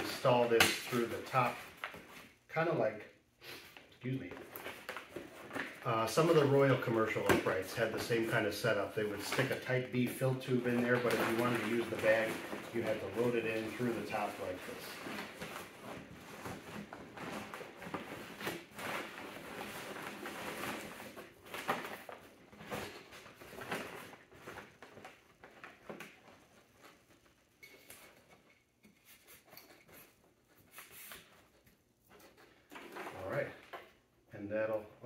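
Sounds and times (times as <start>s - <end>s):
cloth and paper bag rustling: 4.2s - 28.0s.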